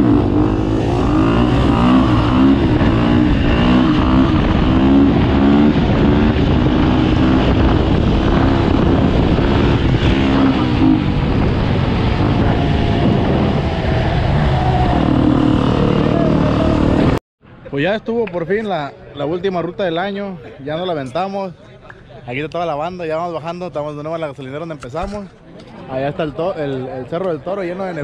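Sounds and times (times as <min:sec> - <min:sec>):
wind noise on microphone: 0:00.0 - 0:16.2
dirt bike engine revving: 0:00.0 - 0:17.2.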